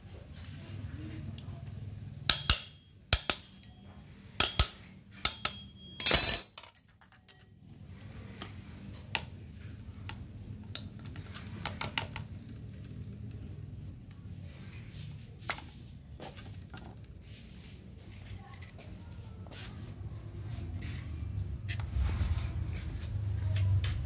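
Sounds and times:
metal clinks and knocks: 4.4 - 7.7.

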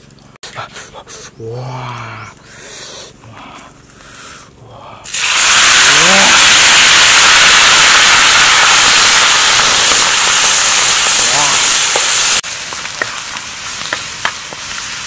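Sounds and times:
eggs sizzling in hot oil: 5.1 - 15.0.

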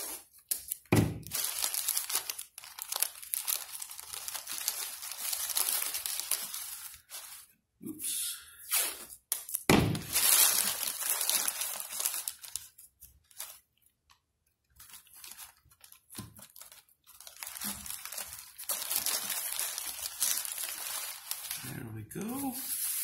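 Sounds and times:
tape ripping from roll: 0.0 - 7.4, 8.7 - 13.6
newspaper crinkling: 0.0 - 7.6, 8.7 - 23.0.

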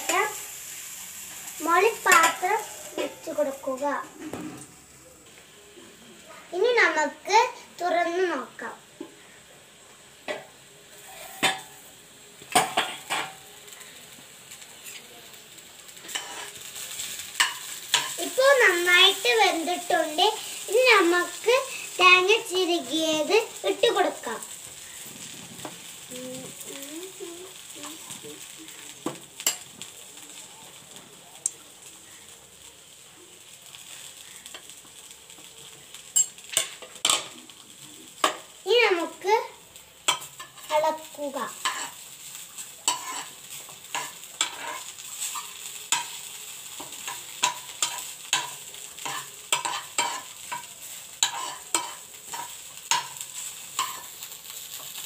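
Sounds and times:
faint sizzle: 0.0 - 55.0
spoon scraping and knocking pan: 10.3 - 11.8, 17.3 - 18.5, 40.1 - 40.7, 41.6 - 42.0, 42.8 - 54.2.

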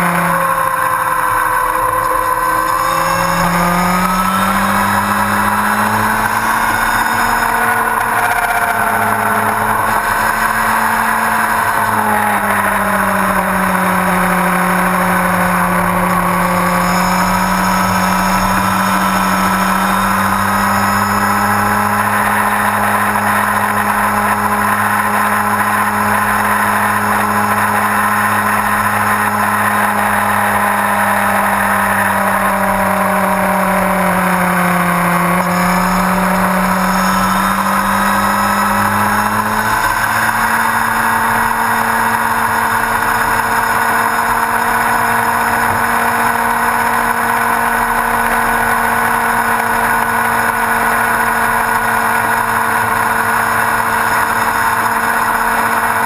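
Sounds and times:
motorcycle engine cruising: 0.0 - 56.0
wind and road noise: 0.0 - 56.0.

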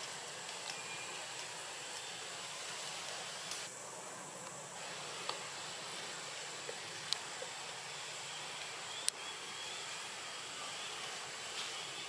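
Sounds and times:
forest ambience hiss: 0.0 - 12.0
thin high whine: 0.0 - 12.0.

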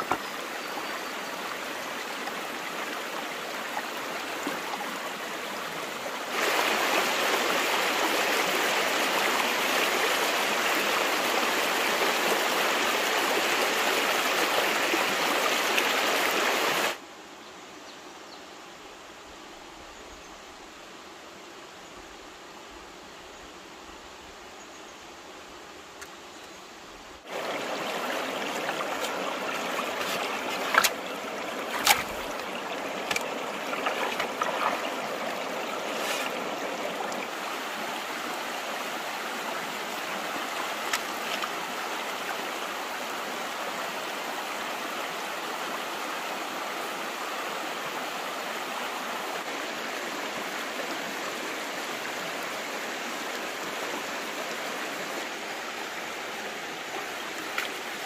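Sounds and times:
stream water rushing: 0.0 - 17.0, 25.4 - 58.0.

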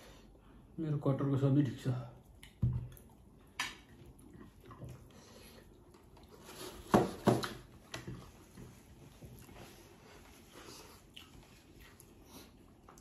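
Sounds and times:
quiet chewing: 2.2 - 6.9, 7.9 - 13.0.

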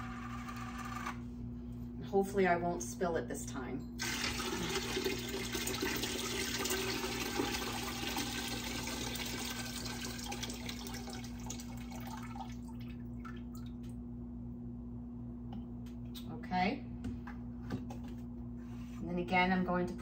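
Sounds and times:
water pouring into a pot: 4.0 - 13.6.

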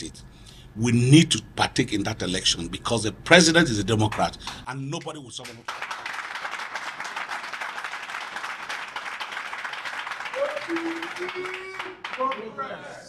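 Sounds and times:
crowd clapping: 4.4 - 12.6.

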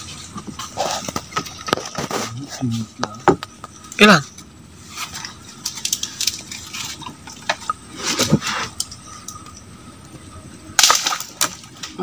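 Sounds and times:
water sounds in a pond: 4.8 - 12.0.

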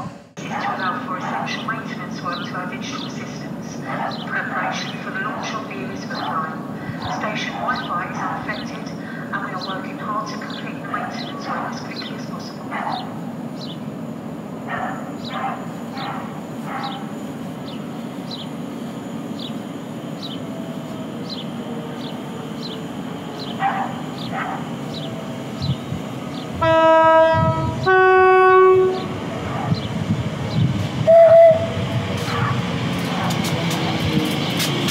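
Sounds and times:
train two-tone horn: 26.6 - 29.2, 31.1 - 32.4.

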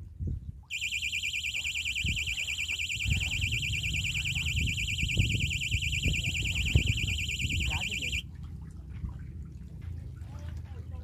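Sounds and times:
warbling electronic alarm beep: 0.7 - 8.2.

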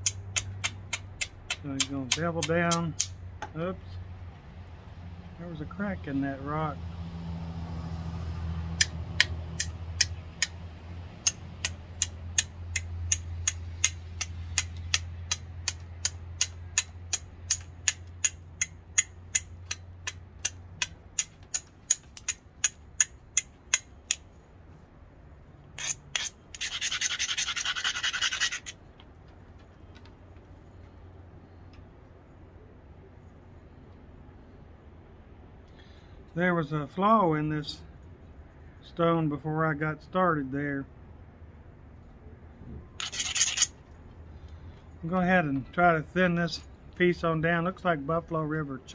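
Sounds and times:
copper bar grinding on stone: 16.4 - 24.2, 25.7 - 28.8, 43.0 - 43.8.

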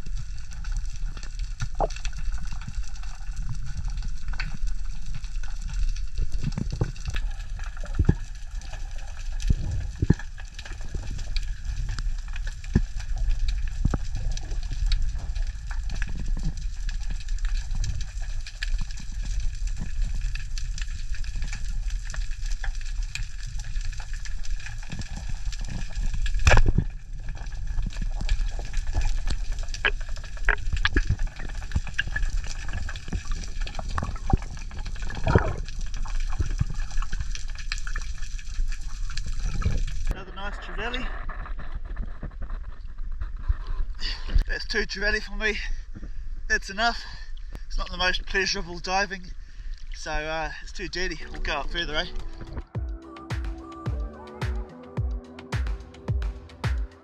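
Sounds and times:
crackling clicks: 0.0 - 40.2
underwater rumble: 0.0 - 44.5.

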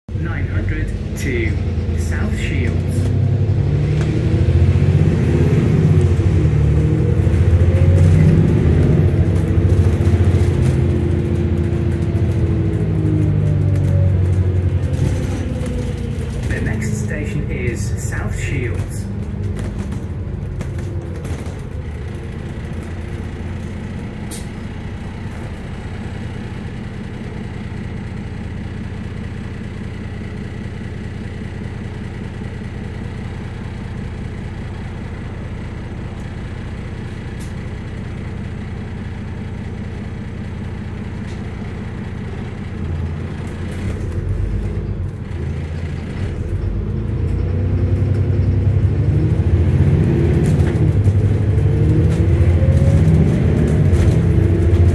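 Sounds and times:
bus engine humming: 0.1 - 54.9.

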